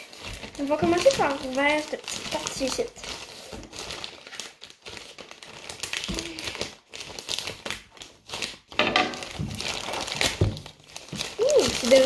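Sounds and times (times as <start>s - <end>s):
packaging crinkling: 0.0s - 12.0s
knife cutting packaging: 5.7s - 12.0s.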